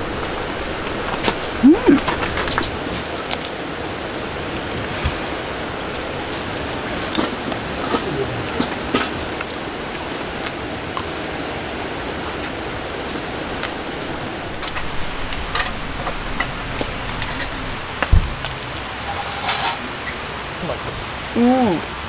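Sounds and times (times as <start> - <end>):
steady rain: 0.0 - 22.0
dull thump: 14.4 - 19.0.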